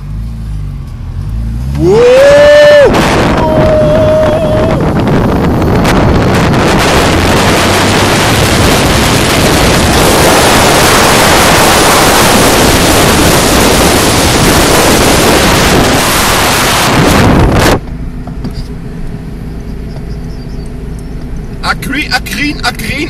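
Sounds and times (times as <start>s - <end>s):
wind rushing over microphone: 1.8s - 17.9s.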